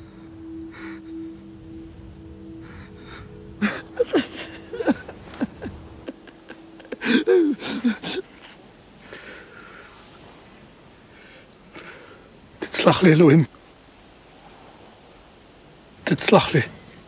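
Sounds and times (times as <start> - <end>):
low music drone: 0.0 - 10.4.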